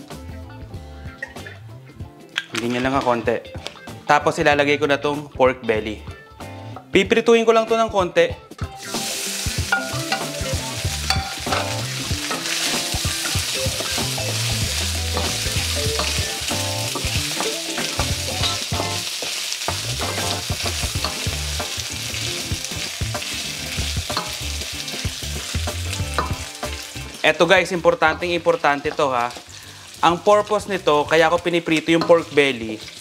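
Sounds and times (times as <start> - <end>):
pork sizzling in a wok: 8.6 - 33.0.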